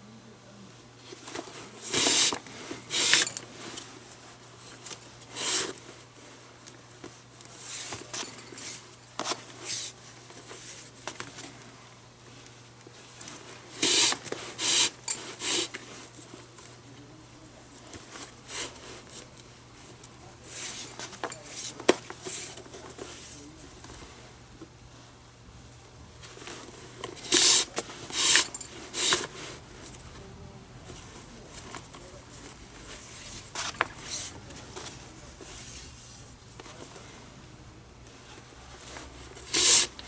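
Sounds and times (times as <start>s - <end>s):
leather lace scraping through holes: 1.8s - 3.4s, 13.8s - 15.8s.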